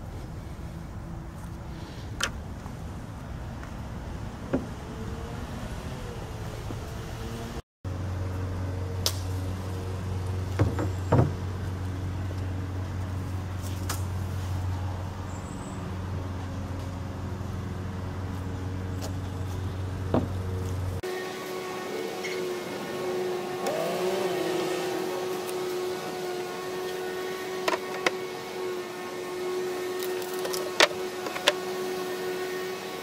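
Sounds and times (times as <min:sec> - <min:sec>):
low mechanical hum: 0:00.0 - 0:33.0
lumber and tools knocking on wood: 0:10.5 - 0:11.4, 0:20.1 - 0:20.4.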